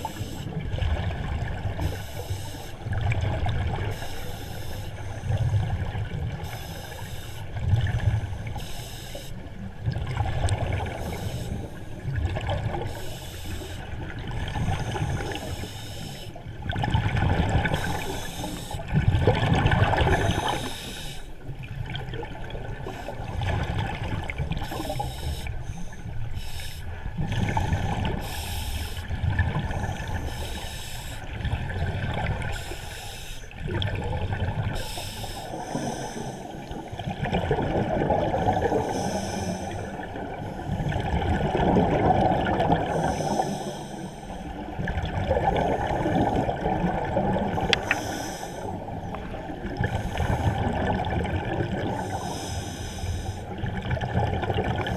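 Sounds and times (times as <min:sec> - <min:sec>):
scuba regulator breaths: 0:00.0 - 0:00.5, 0:01.8 - 0:02.9, 0:03.9 - 0:05.5, 0:06.4 - 0:09.4, 0:10.8 - 0:12.0, 0:12.8 - 0:13.9, 0:14.5 - 0:16.4, 0:17.6 - 0:19.0, 0:19.9 - 0:21.4, 0:24.6 - 0:29.1, 0:29.7 - 0:31.3, 0:32.5 - 0:33.6, 0:34.8 - 0:36.8, 0:38.4 - 0:40.8, 0:42.8 - 0:44.6, 0:47.6 - 0:50.9, 0:51.9 - 0:53.6
gurgling exhaled bubbles: 0:09.6 - 0:13.2, 0:16.5 - 0:20.8, 0:33.5 - 0:43.6, 0:44.5 - 0:52.4, 0:53.5 - 0:54.9.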